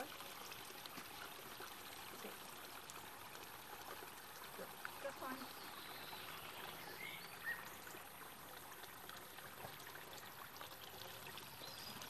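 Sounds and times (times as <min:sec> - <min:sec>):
faint high bird chirps: 0:05.3 - 0:07.8.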